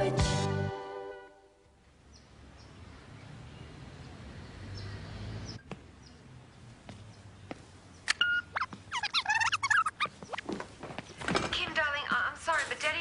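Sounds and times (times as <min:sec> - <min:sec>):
faint bird chirps: 0:08.0 - 0:10.5.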